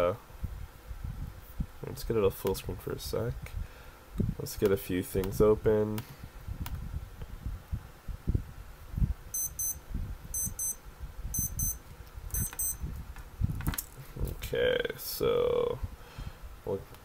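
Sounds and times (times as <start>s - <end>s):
electronic alarm double beeps: 9.3s - 12.8s.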